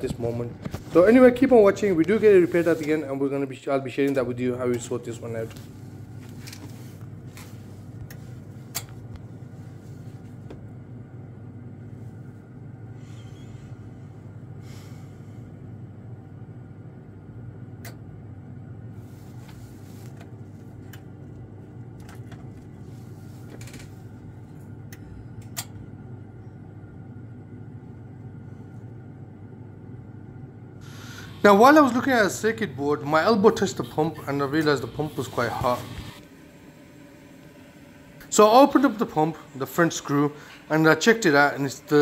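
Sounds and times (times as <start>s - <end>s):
boiler humming: 0.0s - 42.0s
boiler clicks: 8.0s - 9.2s, 17.8s - 18.1s.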